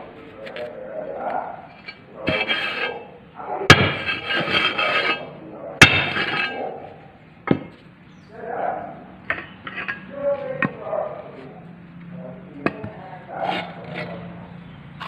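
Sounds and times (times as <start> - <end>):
metal scraping on metal: 0.4 - 7.8, 9.2 - 11.5, 12.6 - 15.0
metallic clanks: 1.7 - 3.1, 3.7 - 6.8, 9.2 - 10.8.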